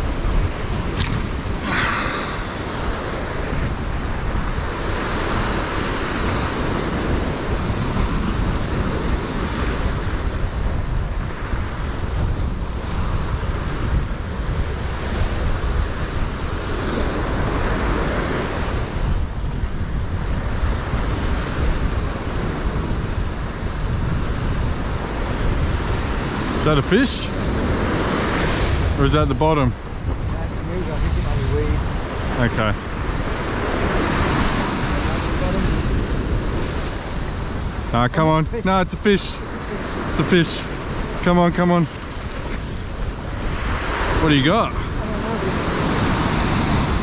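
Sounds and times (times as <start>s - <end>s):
ocean surf washing in: 0.0s - 47.0s
wind rumbling on microphone: 0.0s - 47.0s.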